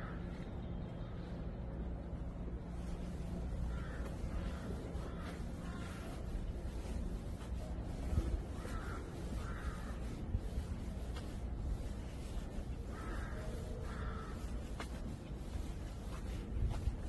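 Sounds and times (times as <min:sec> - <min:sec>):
crow cawing: 0:03.7 - 0:06.0, 0:08.6 - 0:10.2, 0:12.9 - 0:14.5.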